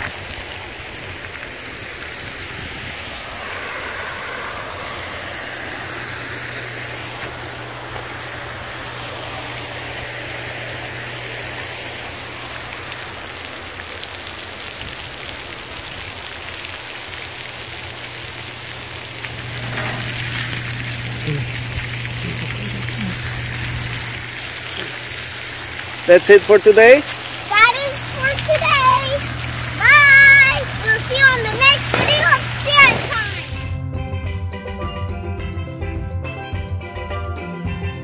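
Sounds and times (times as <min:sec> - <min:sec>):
fountain water spraying and splashing: 0:00.0 - 0:33.8
low steady hum: 0:03.0 - 0:14.1, 0:17.2 - 0:26.1, 0:27.0 - 0:33.8.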